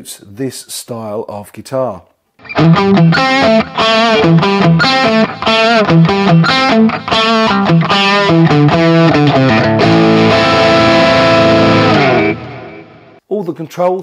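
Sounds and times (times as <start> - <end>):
guitar chord ringing: 2.4 - 13.2
overdriven electric guitar lead: 2.4 - 13.2.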